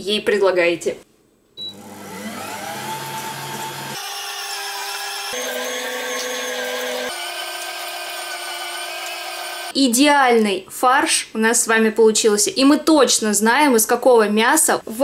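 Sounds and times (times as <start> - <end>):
electric meat grinder whining: 1.7 - 9.8.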